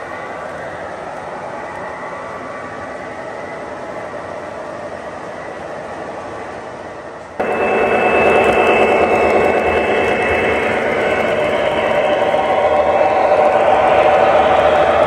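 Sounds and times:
model train rolling on track: 0:00.0 - 0:15.0
high whine: 0:07.4 - 0:15.0.

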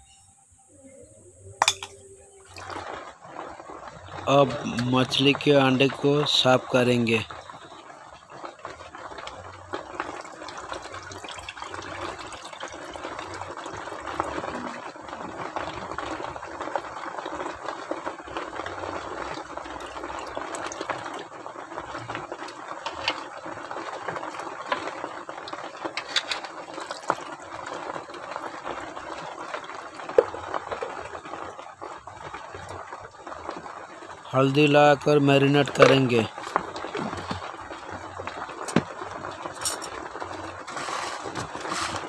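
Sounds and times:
water sloshing in a bowl: 0:01.6 - 0:05.4.

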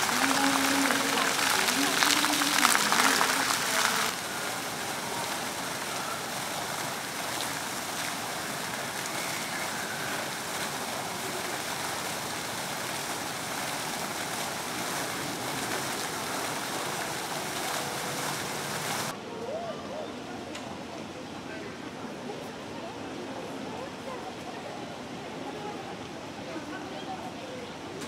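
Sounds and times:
fountain water splashing: 0:00.0 - 0:19.2.

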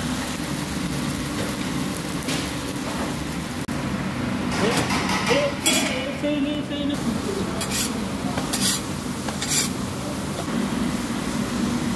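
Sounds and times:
steady background hum: 0:00.0 - 0:11.9
metal spatula scraping griddle: 0:07.6 - 0:09.8.

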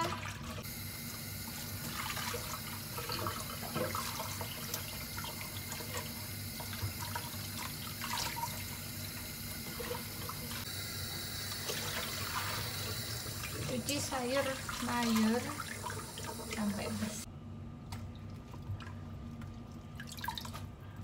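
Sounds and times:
vegetables rinsed in bowl: 0:01.2 - 0:10.7, 0:11.4 - 0:17.3.

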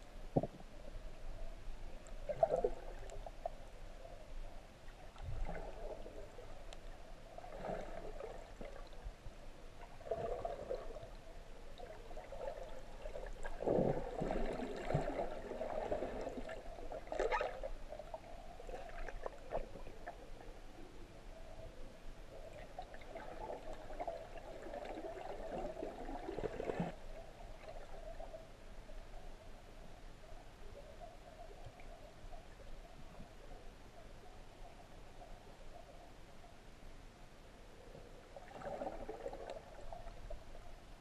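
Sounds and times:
muffled water sloshing underwater: 0:00.0 - 0:41.0
faint ticks: 0:06.6 - 0:07.0.

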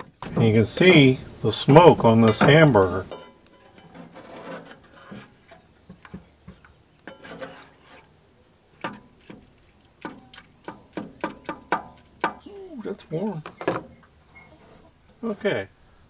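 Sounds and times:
spatula scraping skillet: 0:02.0 - 0:05.7, 0:06.5 - 0:12.3.

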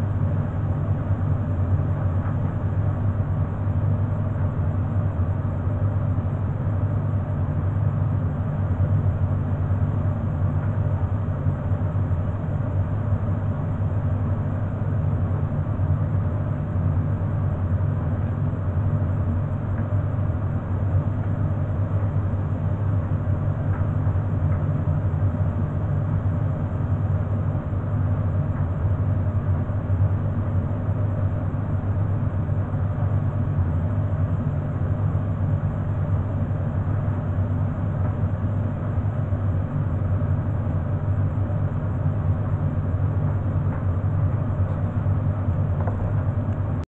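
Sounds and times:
low motor hum: 0:14.5 - 0:46.8.

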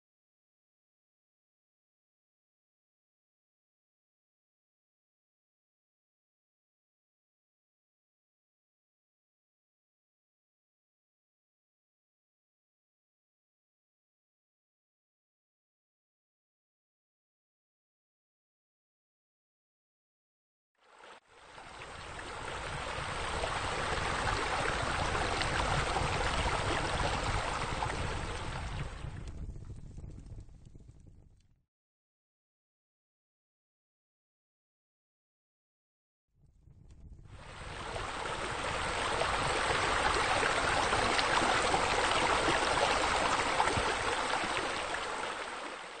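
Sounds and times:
fountain water splashing: 0:21.0 - 0:29.0, 0:37.4 - 0:46.0.

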